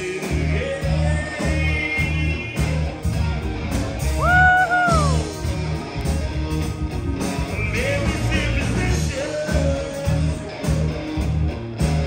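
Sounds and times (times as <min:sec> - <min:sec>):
live rock band playing: 0:00.0 - 0:12.0.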